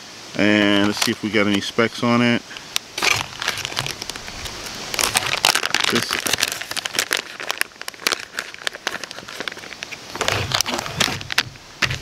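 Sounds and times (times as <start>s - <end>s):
plastic package crinkling: 0.8s - 1.4s, 3.0s - 12.0s.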